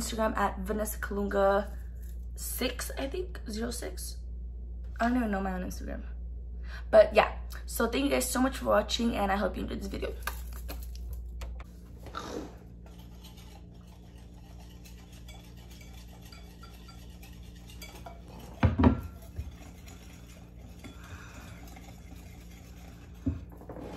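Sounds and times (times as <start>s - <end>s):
whisk clinking in ceramic bowl: 12.9s - 23.5s.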